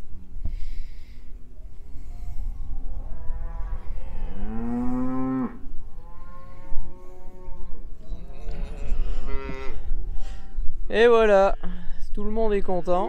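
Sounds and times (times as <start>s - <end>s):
cattle mooing: 2.1s - 10.6s.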